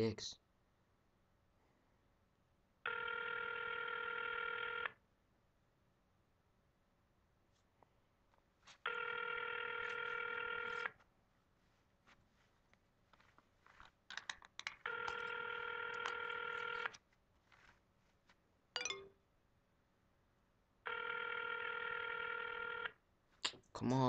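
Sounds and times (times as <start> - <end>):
telephone ringback tone: 2.9 - 4.9, 8.9 - 10.9, 14.9 - 17.0, 18.8 - 19.1, 20.9 - 22.9.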